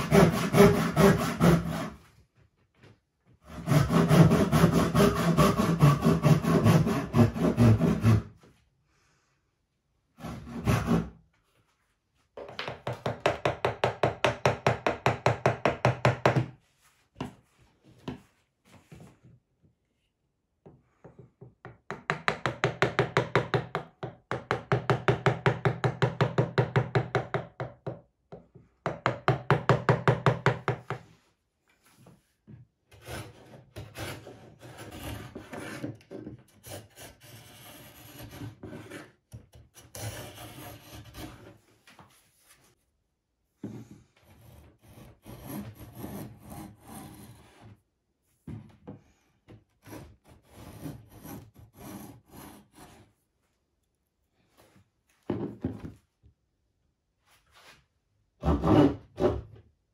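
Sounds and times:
hand saw rasping on wood: 0.0 - 2.0, 3.5 - 8.3, 10.2 - 11.1, 33.0 - 35.9, 36.6 - 39.1, 39.8 - 41.5, 44.3 - 47.6, 49.8 - 53.0.

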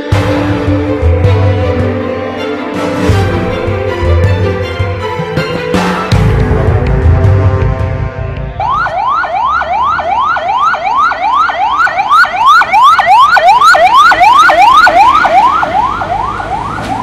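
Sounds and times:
siren yelping: 8.6 - 17.0.

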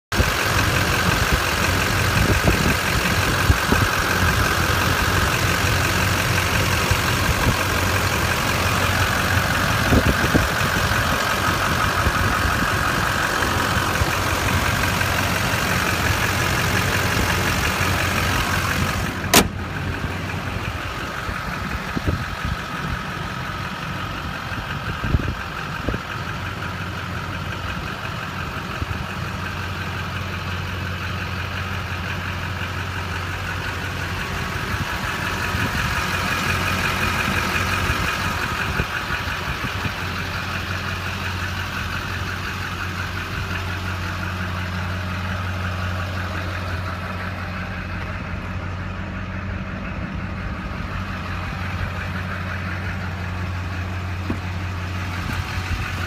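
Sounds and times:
diesel engine idling: 0.1 - 56.0
sharp knock: 19.3 - 19.6.

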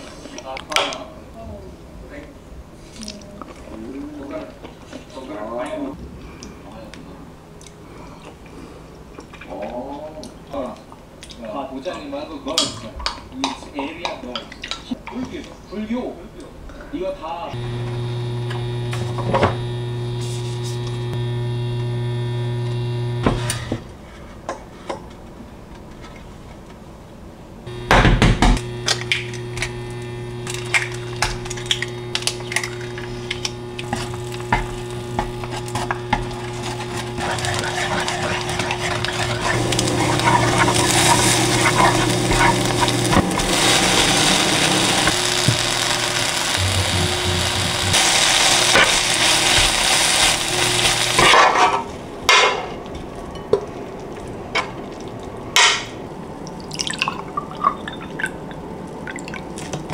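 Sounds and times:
eggs sizzling in pan: 17.6 - 23.6, 27.7 - 51.4
steady motor hum: 17.6 - 23.8, 27.7 - 51.3.

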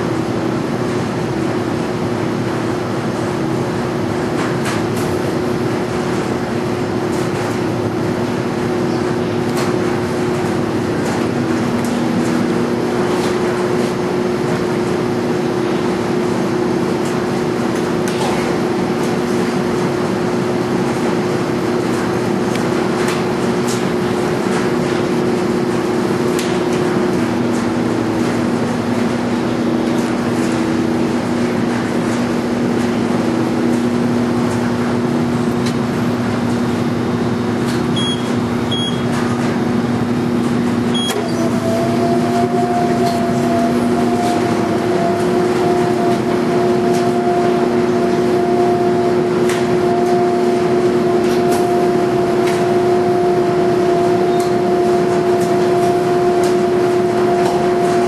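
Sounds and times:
washer motor hum: 0.0 - 58.0
short high beeps: 38.0 - 39.0.

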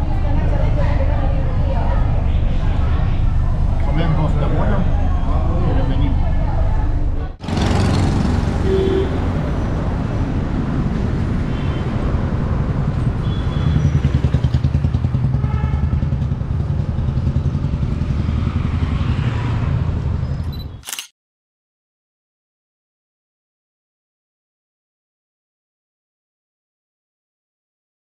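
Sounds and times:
cars passing: 0.0 - 15.5, 16.3 - 20.6
motorbikes passing: 0.0 - 20.5.

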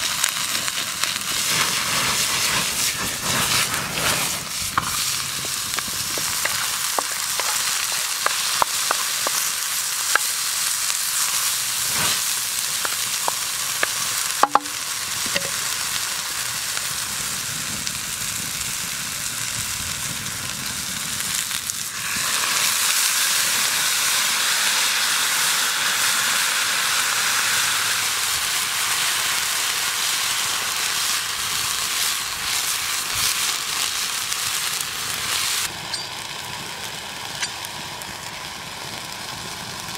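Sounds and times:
food sizzling in a pan: 0.0 - 39.9
sharp pops: 11.9 - 15.5.

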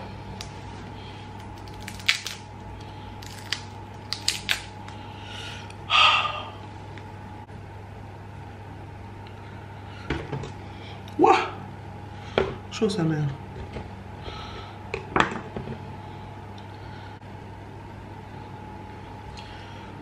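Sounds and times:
chestnut shells cracking: 1.4 - 5.0.

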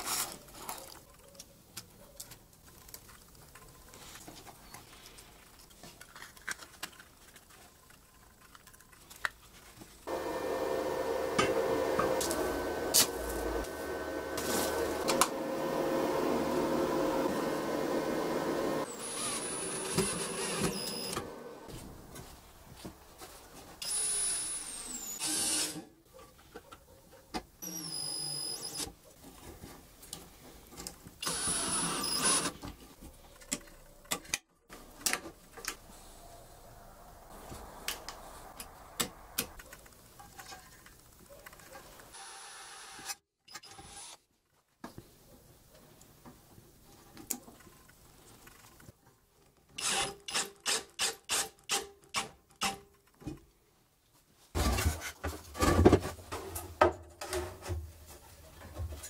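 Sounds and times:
electric drill whining: 10.1 - 21.7, 23.8 - 25.8, 31.2 - 32.6, 42.2 - 44.2, 49.8 - 50.4.

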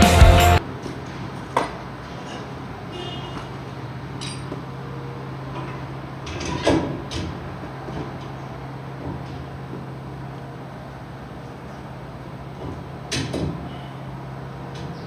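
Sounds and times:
music: 0.0 - 0.6
metal tools clanking on hub: 4.2 - 4.6, 5.5 - 7.3.

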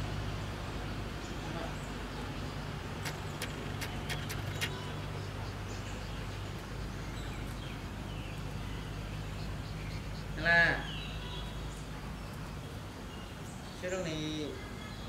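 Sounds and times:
sharp clicks: 3.0 - 4.9.

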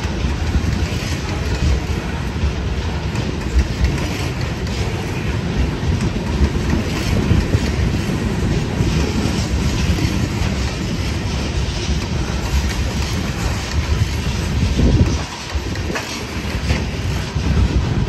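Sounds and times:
freight train rumbling past: 0.0 - 18.0
wheels clacking on rails: 0.0 - 18.0.

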